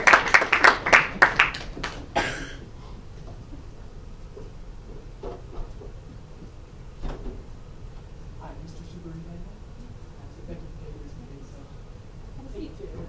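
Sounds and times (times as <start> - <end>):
audience clapping: 0.0 - 2.8.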